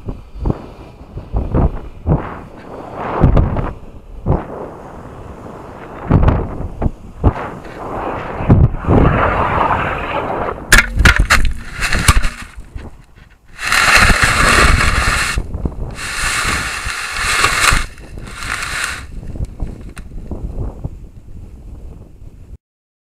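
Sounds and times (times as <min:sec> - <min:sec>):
wind rushing over microphone: 0:00.0 - 0:22.6
rocket knocking on ground: 0:10.7 - 0:13.0
harsh hissing noise: 0:13.5 - 0:20.0.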